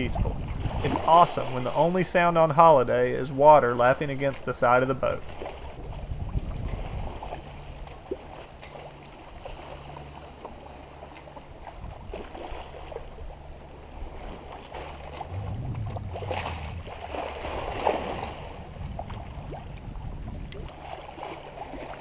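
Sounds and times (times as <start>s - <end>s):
wind buffeting microphone: 0.0s - 1.8s, 5.4s - 8.0s, 13.1s - 21.9s
water rushing along boat hull: 0.0s - 22.0s.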